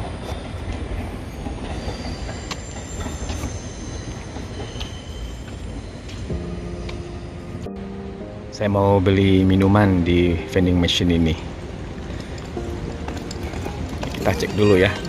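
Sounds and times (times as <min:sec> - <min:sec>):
wheel squeal: 0:00.0 - 0:06.7, 0:12.9 - 0:15.0
train rumbling on rails: 0:00.0 - 0:15.0.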